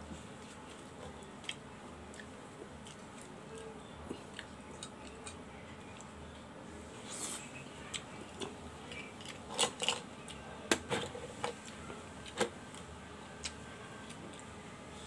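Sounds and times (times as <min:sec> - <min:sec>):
person chewing: 0:00.4 - 0:06.1.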